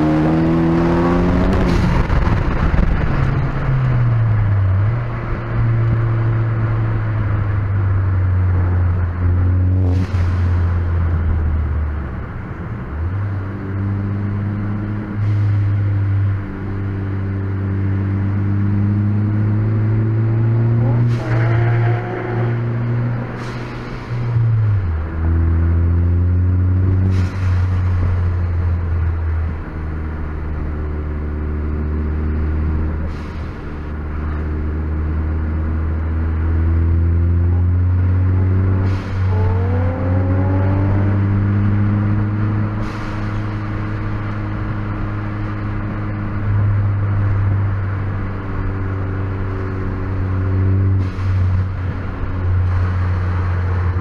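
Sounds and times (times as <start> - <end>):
car engine drone from cabin: 0.0 - 54.0.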